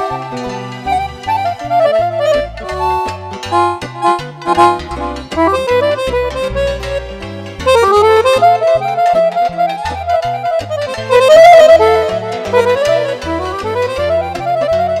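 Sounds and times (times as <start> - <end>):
accordion melody: 0.0 - 15.0
bass line: 0.0 - 15.0.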